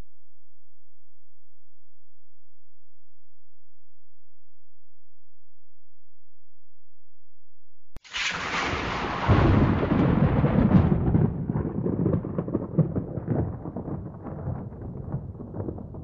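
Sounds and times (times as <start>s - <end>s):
low rumble with crackling: 7.9s - 16.0s
loud crash: 8.0s - 11.3s.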